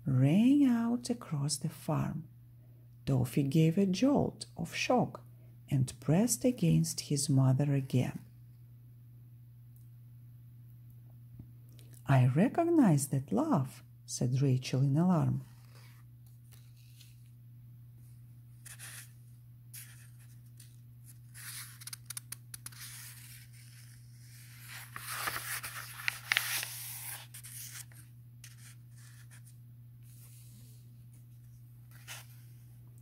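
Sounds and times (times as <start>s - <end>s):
steady low hum: 5.2s - 33.0s
book pages turning: 15.5s - 17.4s, 18.6s - 32.7s.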